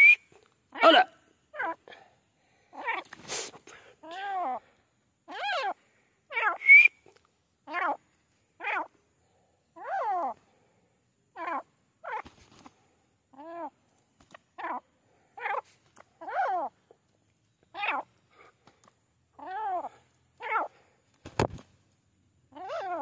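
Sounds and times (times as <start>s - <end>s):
francolin calling: 0.0s - 1.9s, 4.0s - 10.5s, 11.3s - 12.3s, 14.5s - 18.5s, 22.5s - 23.0s.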